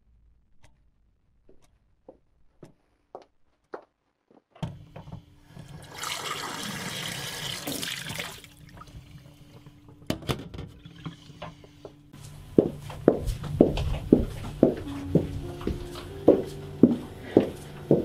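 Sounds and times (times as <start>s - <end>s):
steady low hum: 10.8s - 18.0s.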